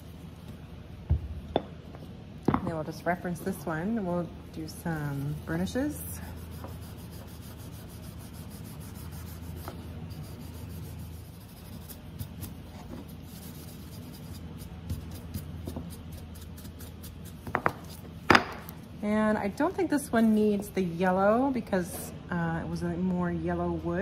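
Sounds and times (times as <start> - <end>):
low steady hum: 0.0 - 24.0
pad rubbing on wood: 5.0 - 18.1.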